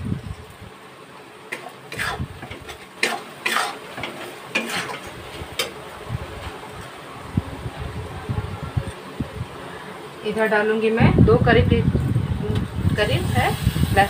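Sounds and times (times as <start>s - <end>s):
oil sizzling: 0.0s - 7.1s, 12.9s - 14.0s
metal spatula scraping pan: 1.5s - 5.8s.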